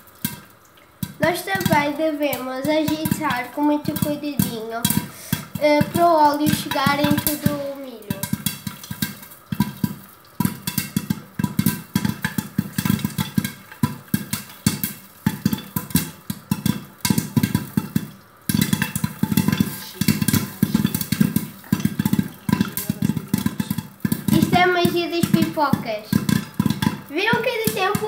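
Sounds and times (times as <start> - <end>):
popcorn popping in a pot: 0.0 - 28.0.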